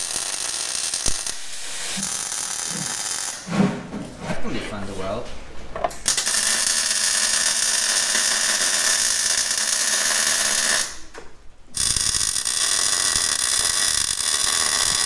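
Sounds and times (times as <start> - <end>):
arc welding crackling sizzle: 0.0 - 3.5, 6.0 - 11.1, 11.7 - 15.0.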